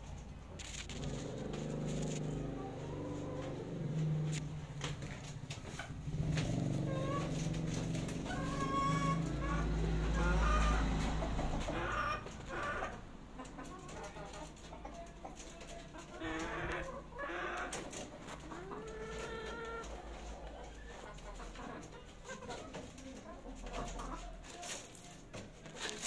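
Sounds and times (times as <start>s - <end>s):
chickens clucking: 0.0s - 26.0s.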